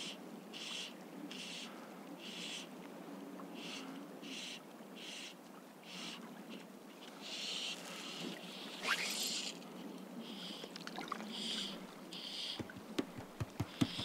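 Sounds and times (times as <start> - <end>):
fishing line zipping through guides: 8.6 - 9.6.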